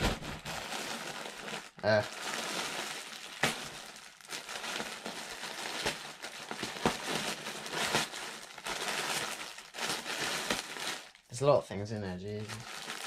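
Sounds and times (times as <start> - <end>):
plastic bag crinkling: 0.0 - 11.4, 12.3 - 13.0.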